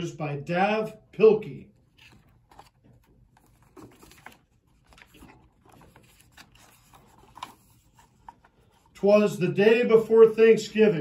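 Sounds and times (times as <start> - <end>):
paper pages rustling: 1.8 - 9.0.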